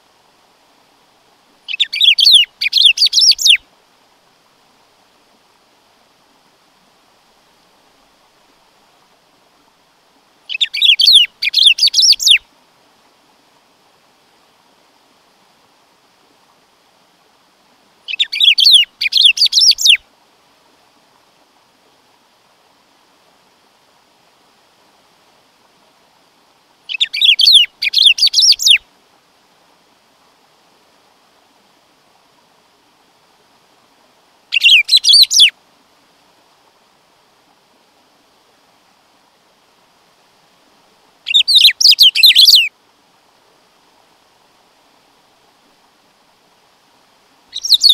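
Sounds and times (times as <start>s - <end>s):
faint steady hiss: 0.0s - 47.9s
bird singing warbled notes: 34.6s - 35.5s, 47.6s - 47.9s.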